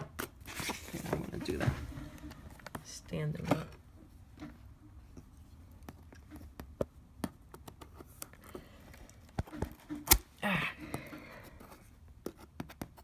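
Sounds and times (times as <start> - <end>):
hands tapping and clicking box: 5.9 - 8.6, 12.2 - 13.0.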